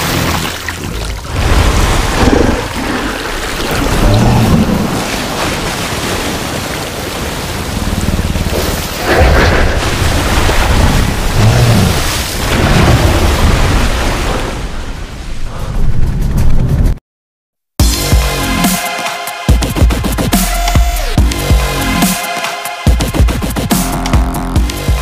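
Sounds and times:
rushing and splashing water: 0.0s - 15.2s
deep rumbles: 0.1s - 5.7s, 7.2s - 14.2s.

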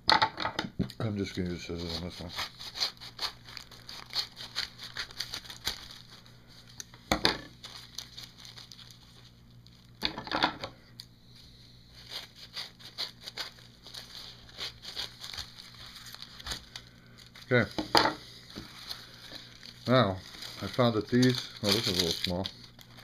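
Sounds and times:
paper crinkling and rustling: 1.0s - 6.9s, 7.5s - 10.0s, 12.0s - 17.8s, 18.4s - 23.0s
scissors cutting paper: 1.3s - 6.0s, 12.0s - 16.8s, 20.4s - 23.0s.

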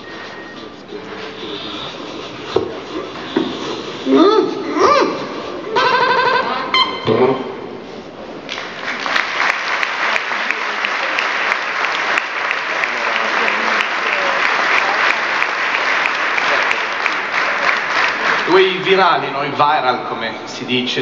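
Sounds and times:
audience applause: 8.5s - 19.0s.

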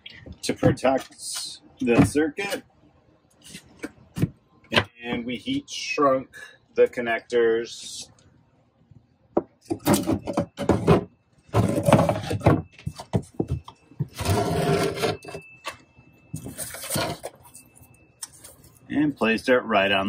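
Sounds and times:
wood scraping on wood: 9.9s - 12.5s, 14.1s - 15.5s, 16.4s - 17.5s.

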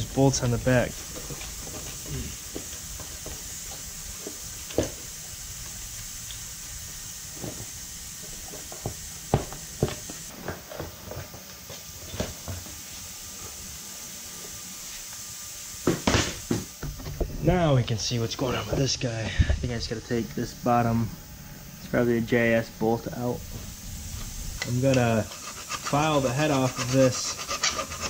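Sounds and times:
steady hiss: 0.0s - 28.0s.

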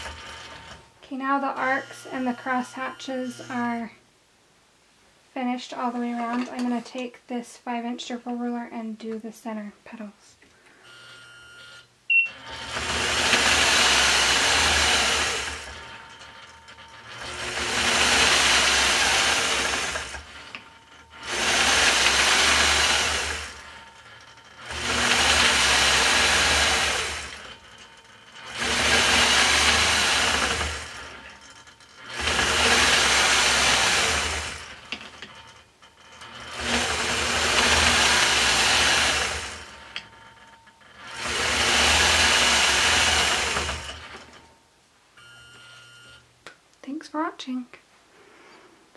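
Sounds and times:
quilting machine stitching: 0.0s - 3.7s, 10.9s - 44.6s.

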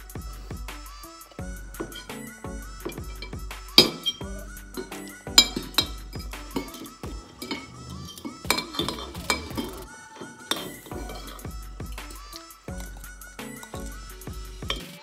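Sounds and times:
cutlery clinking against ceramic bowl: 1.8s - 11.4s, 14.6s - 15.0s.

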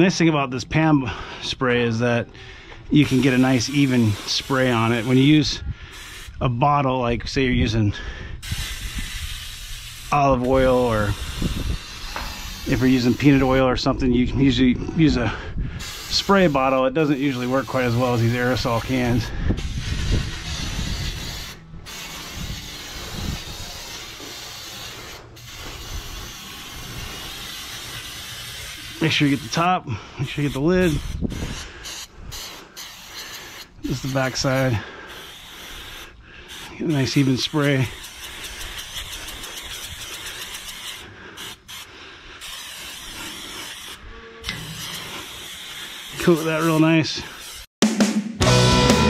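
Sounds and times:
aerosol spray hissing: 3.0s - 5.3s, 6.0s - 6.4s, 8.4s - 13.6s, 15.8s - 29.6s, 30.4s - 47.7s.

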